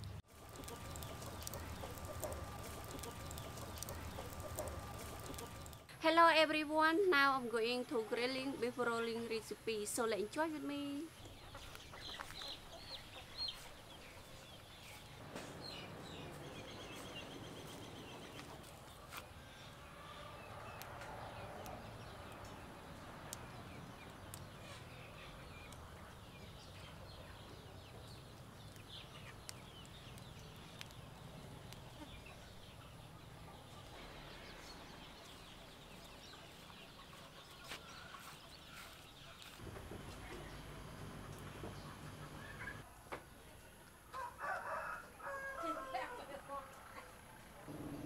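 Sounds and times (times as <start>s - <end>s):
chickens clucking: 0.4s - 5.9s, 35.2s - 40.6s, 41.2s - 42.9s.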